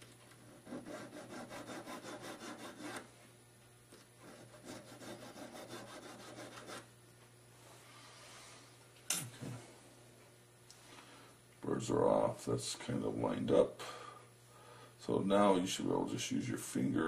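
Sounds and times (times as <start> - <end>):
hand file scraping metal: 0.4 - 3.0, 4.2 - 6.8.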